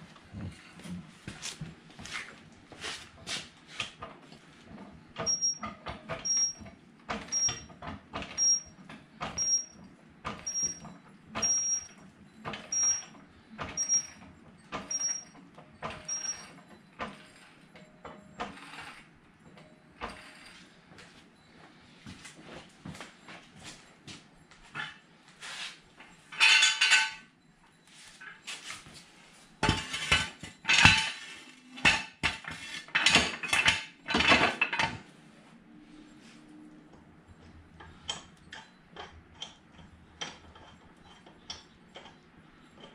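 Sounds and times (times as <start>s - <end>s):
knocks and footsteps: 0.0s - 5.0s, 22.0s - 26.2s
ratchet squeak: 5.2s - 5.6s, 6.2s - 6.6s, 7.3s - 7.7s, 8.4s - 8.7s, 9.4s - 9.8s, 10.4s - 12.0s, 12.6s - 17.6s.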